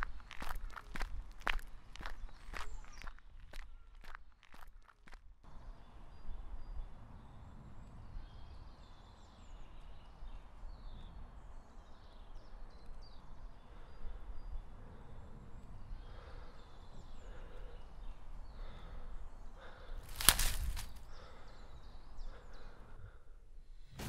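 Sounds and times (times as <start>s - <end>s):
bird chirps: 1.9s - 4.2s.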